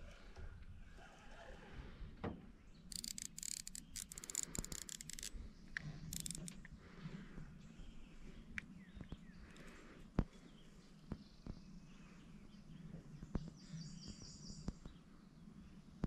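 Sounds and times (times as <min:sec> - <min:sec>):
fishing reel clicker ticking: 0:02.9 - 0:05.3, 0:06.1 - 0:06.5.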